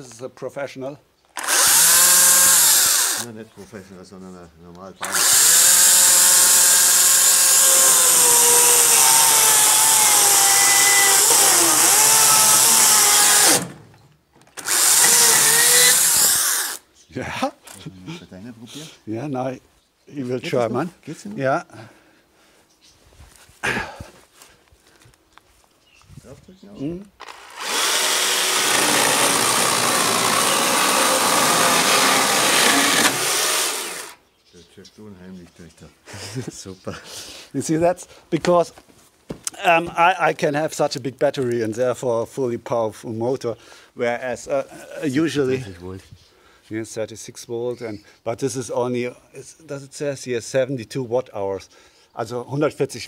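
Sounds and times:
electric chainsaw motor whining: 0:01.4 - 0:03.3, 0:05.0 - 0:13.8, 0:14.6 - 0:16.8, 0:27.2 - 0:34.2.

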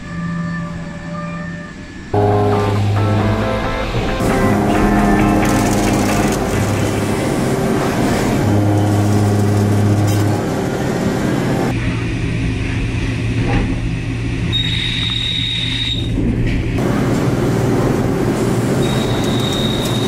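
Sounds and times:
thin high whine: 0:00.0 - 0:12.0
milling machine cutting steel: 0:04.2 - 0:11.7.

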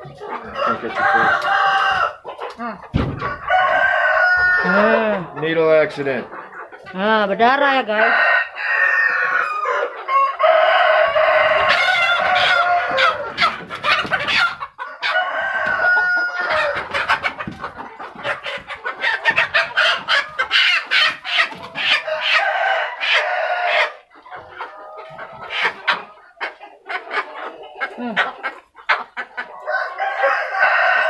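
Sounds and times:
chickens clucking and squawking: 0:00.0 - 0:31.0
rooster crowing: 0:00.6 - 0:02.2, 0:03.2 - 0:04.9, 0:08.0 - 0:13.3, 0:14.8 - 0:16.8, 0:22.0 - 0:24.0, 0:29.6 - 0:31.0.

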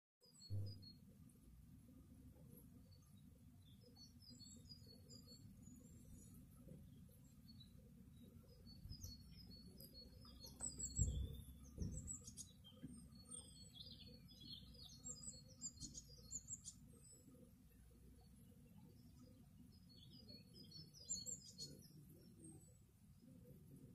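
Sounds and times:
small birds chirping: 0:00.2 - 0:23.9
low thumps: 0:10.9 - 0:12.2.

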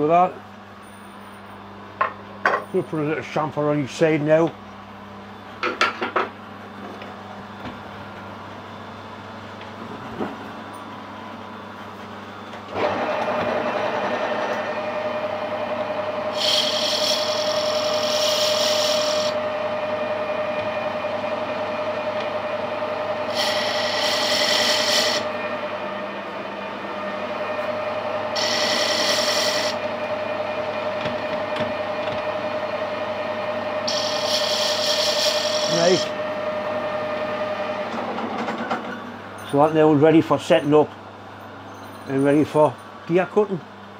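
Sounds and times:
lathe whining: 0:12.5 - 0:40.6
cutting tool hissing: 0:16.1 - 0:19.5, 0:23.1 - 0:25.4, 0:28.2 - 0:30.0, 0:33.8 - 0:36.3.

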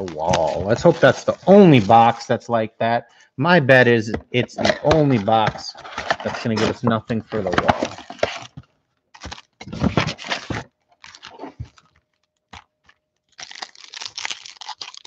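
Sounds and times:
cardboard scraping and tearing: 0:04.6 - 0:08.6, 0:09.2 - 0:11.9
foil packs crinkling: 0:04.9 - 0:15.0.

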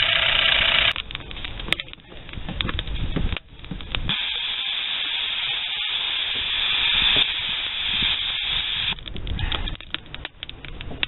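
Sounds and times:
steam hissing from boiler: 0:04.1 - 0:09.0.

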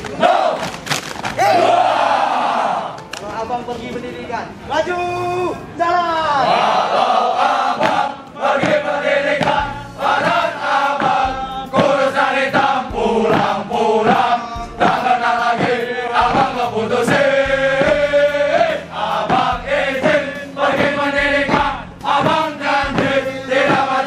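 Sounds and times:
men chanting in unison: 0:06.4 - 0:24.0
stamping feet: 0:07.8 - 0:24.0.

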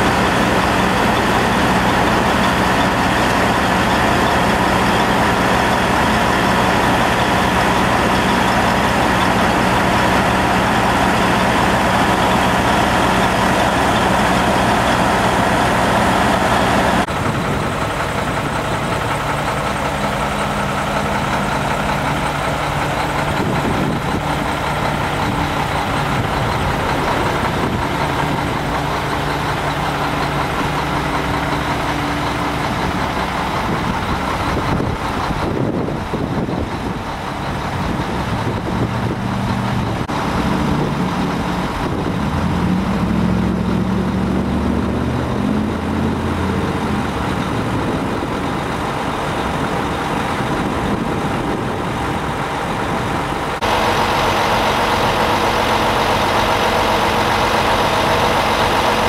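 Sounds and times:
diesel truck engines idling: 0:00.0 - 0:59.0.

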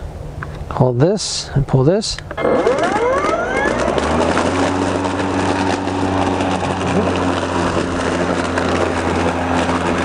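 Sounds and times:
electric lawn mower motor hum: 0:02.4 - 0:10.0
blade chopping dry leaves: 0:03.7 - 0:10.0.

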